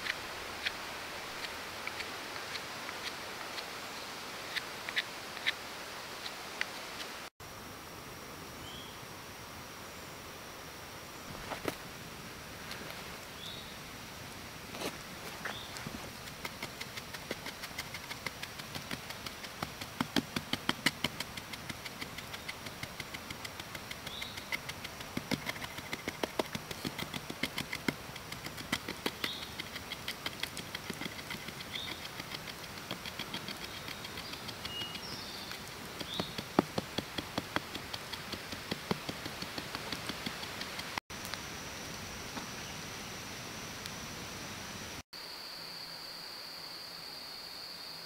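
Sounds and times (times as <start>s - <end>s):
wooden stick ramming sand: 14.8s - 41.0s.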